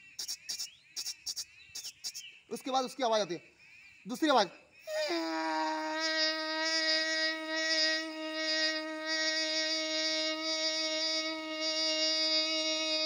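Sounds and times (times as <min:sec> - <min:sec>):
man humming like a train: 0:04.9 - 0:13.0.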